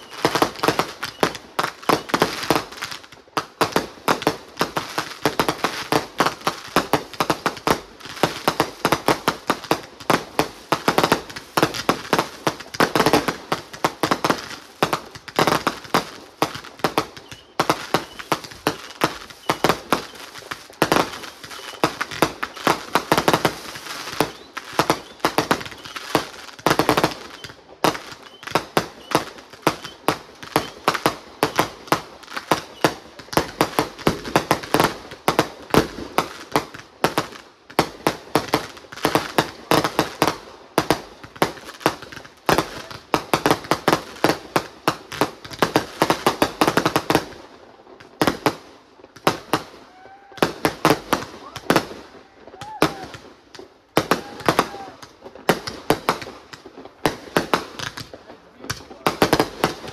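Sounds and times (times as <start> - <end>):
fireworks shells bursting: 16.8 - 33.2.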